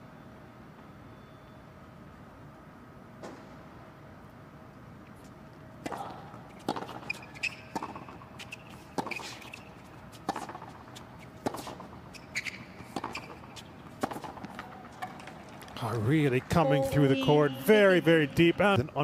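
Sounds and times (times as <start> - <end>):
racquet striking tennis ball: 5.8 - 15.7.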